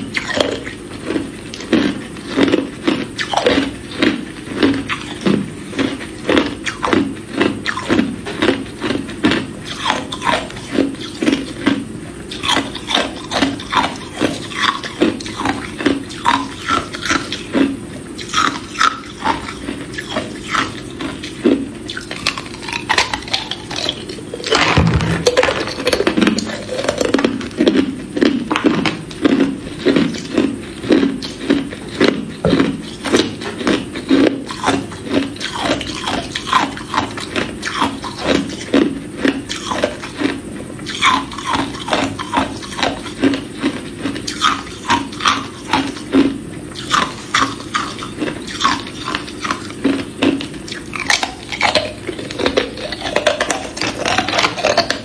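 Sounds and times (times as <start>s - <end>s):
ice cubes crunched by teeth: 21.9s - 40.3s, 40.9s - 55.0s.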